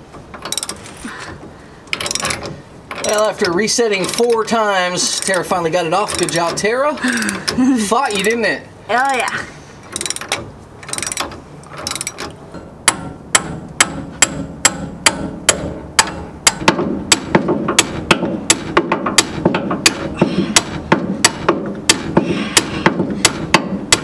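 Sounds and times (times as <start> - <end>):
hammer striking steel: 12.9 - 24.0.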